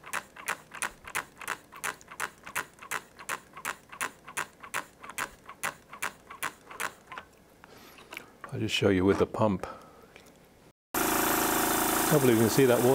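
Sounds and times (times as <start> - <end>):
hand pump clicking: 0.0 - 7.4.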